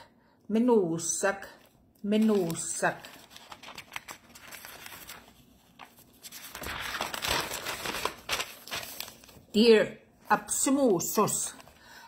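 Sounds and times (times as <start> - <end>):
paper rustling: 2.2 - 9.5.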